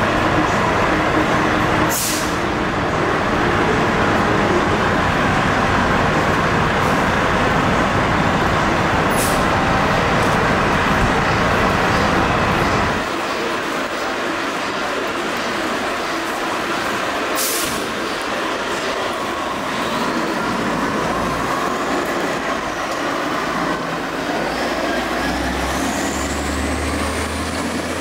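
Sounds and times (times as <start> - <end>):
air release hisses: 1.9 - 2.4.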